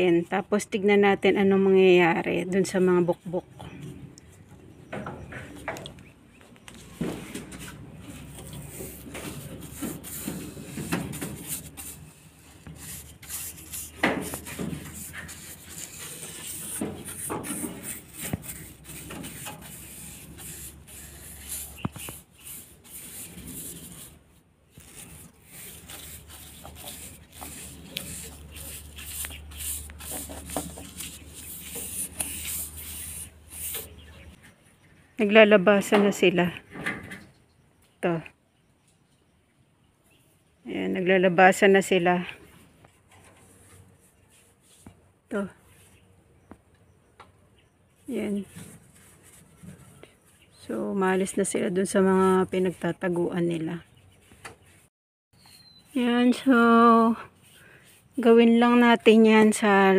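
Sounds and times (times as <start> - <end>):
wet paintbrush scrubbing on wood: 8.1 - 34.3, 43.4 - 45.0, 48.1 - 49.9.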